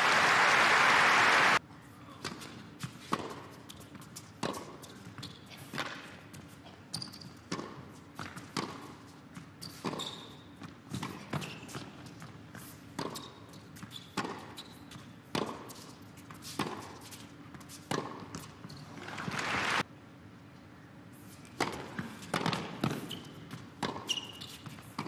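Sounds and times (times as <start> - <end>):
crowd cheering and applause: 0.0 - 1.6, 19.0 - 19.8
shoe squeaks on court: 4.8 - 6.0, 6.9 - 7.6, 9.6 - 15.1, 22.8 - 25.0.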